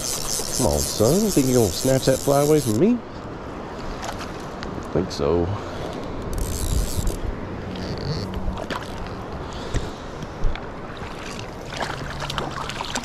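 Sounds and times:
water sloshing and splashing: 7.5s - 13.0s.

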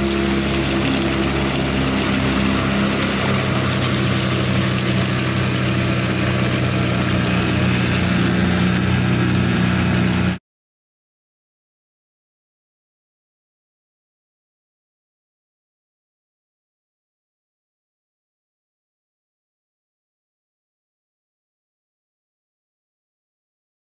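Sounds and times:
small outboard motor running: 0.0s - 10.4s
wind and water hiss: 0.0s - 10.4s.

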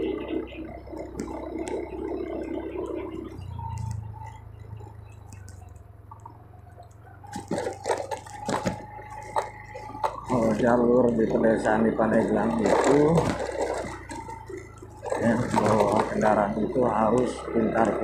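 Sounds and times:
motorcycle engine running: 0.0s - 18.0s
road noise: 0.0s - 18.0s
knocks and rattles on rough stone: 7.3s - 10.8s, 12.2s - 16.5s.

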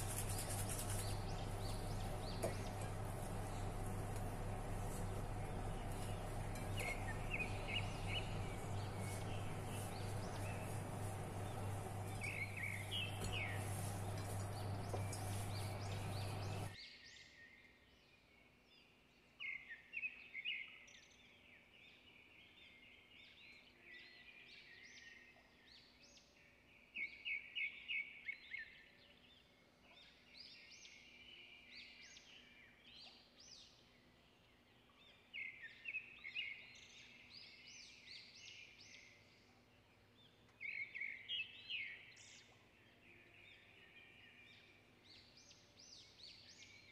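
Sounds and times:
small birds chirping: 0.0s - 16.8s, 26.9s - 46.9s
steady hum and hiss: 0.0s - 16.8s.

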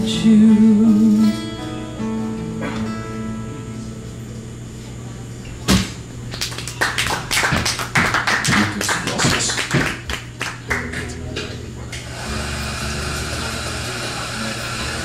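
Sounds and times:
loud thump: 5.7s - 6.0s
audience clapping: 6.3s - 11.6s.

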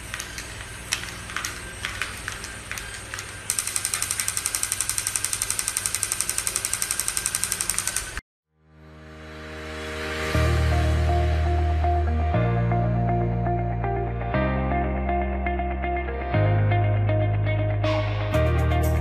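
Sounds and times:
toy mechanism rattling: 1.0s - 8.2s.

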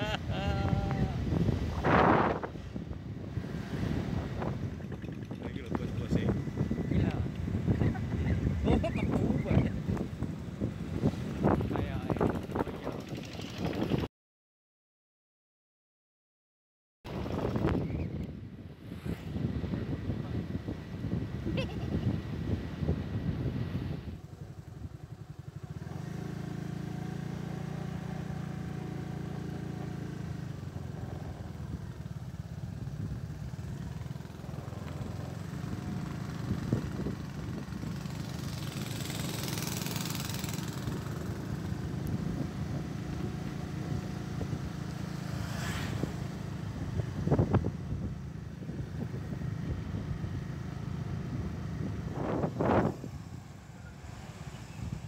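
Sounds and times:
motorbikes passing: 0.0s - 14.1s, 17.1s - 55.0s
motorcycle engine running: 0.0s - 14.1s, 18.9s - 54.1s
rush of noise: 18.7s - 24.2s.

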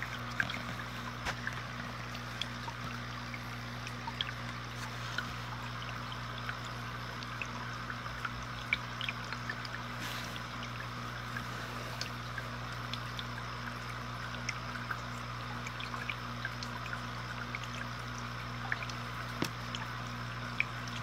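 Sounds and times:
air bubbles trickling and popping: 0.0s - 21.0s
low steady hum: 0.0s - 21.0s.

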